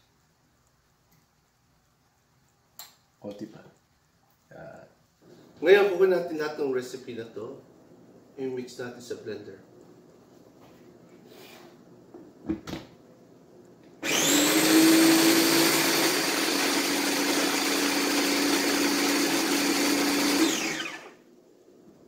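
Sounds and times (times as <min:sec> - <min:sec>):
electric blender running: 0:14.0 - 0:21.2.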